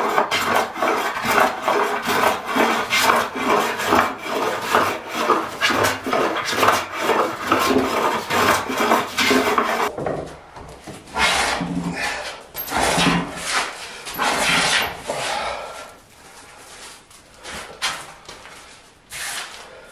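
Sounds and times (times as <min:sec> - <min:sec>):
hand plane shaving wood: 0:00.0 - 0:09.9.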